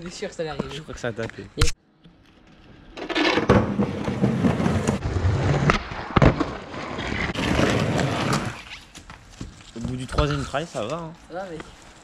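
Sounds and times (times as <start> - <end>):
skateboard wheels on rough paving: 2.4 - 12.0.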